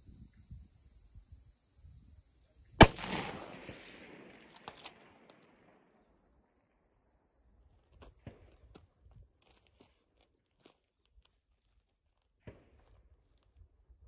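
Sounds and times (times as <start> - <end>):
rifle shot with rolling echo: 2.8 - 5.8.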